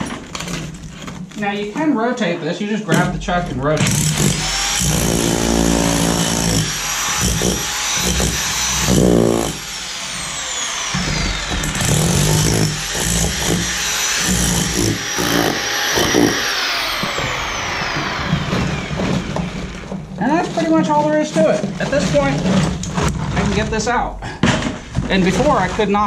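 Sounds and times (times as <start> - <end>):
rotary hammer chiselling wood: 3.8 - 23.6.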